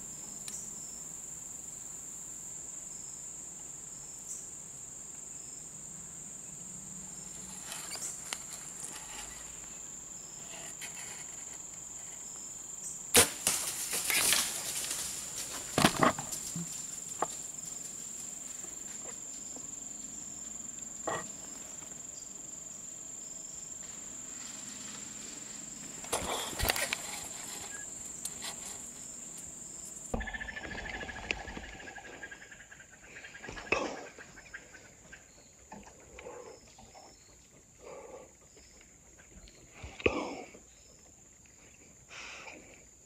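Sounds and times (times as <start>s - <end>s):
crickets and insects trilling: 0.0s - 43.0s
bow being shot snap: 13.1s - 14.4s
rustling in leaves: 13.2s - 19.5s, 23.6s - 30.1s.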